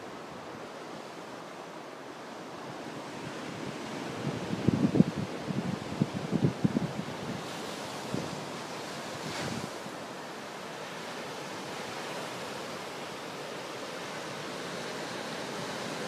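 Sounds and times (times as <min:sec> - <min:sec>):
wind blowing across microphone: 0:00.0 - 0:16.0
ocean surf breaking: 0:02.7 - 0:16.0.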